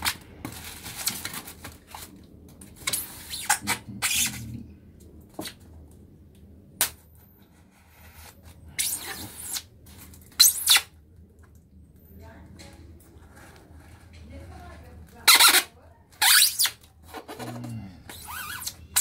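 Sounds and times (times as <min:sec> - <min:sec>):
knife slitting packing tape: 0:08.1 - 0:09.7.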